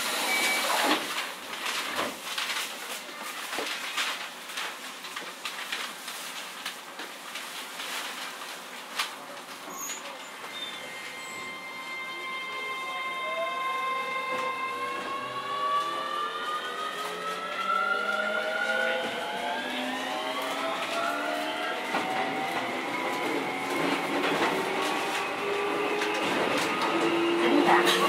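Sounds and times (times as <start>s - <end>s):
train running noise: 10.1s - 28.0s
electric train motor whine: 10.7s - 27.8s
rail clicks: 20.4s - 28.0s.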